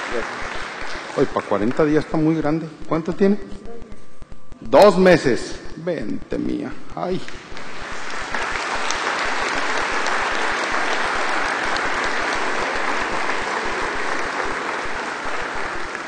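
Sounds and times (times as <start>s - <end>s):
congregation applauding: 0.0s - 3.4s, 6.4s - 16.0s.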